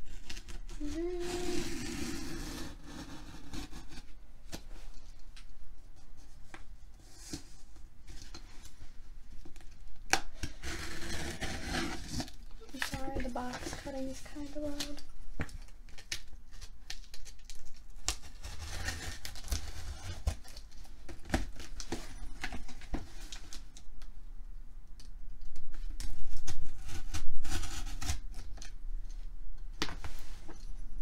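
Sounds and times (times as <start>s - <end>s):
blade cutting tape and cardboard: 0.2s - 4.0s, 10.4s - 14.0s, 18.1s - 20.5s
cardboard rustling: 10.4s - 15.1s.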